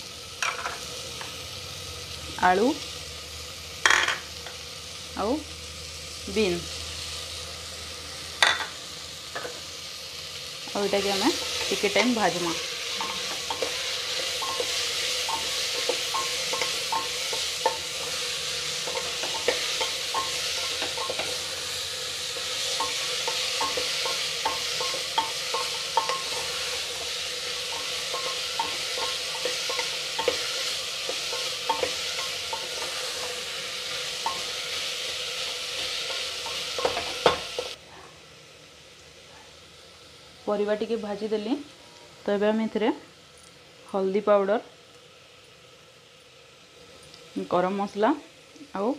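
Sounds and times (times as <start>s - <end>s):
vegetables sizzling in a pot: 0.0s - 48.9s.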